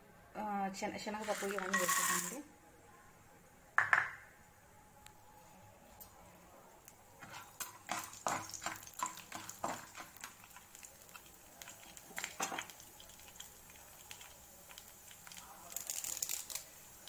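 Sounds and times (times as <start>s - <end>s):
spatula scraping a pan: 7.2s - 12.7s.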